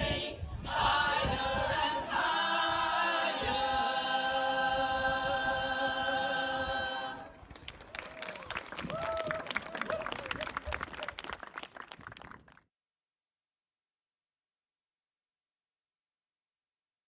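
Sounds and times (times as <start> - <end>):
mixed choir singing: 0.0 - 7.4.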